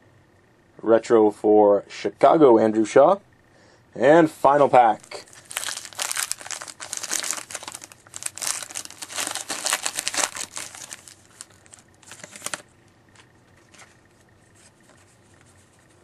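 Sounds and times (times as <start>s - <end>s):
faint handling noise: 4.9s - 16.0s
card wrapper tearing and crinkling: 5.0s - 12.7s.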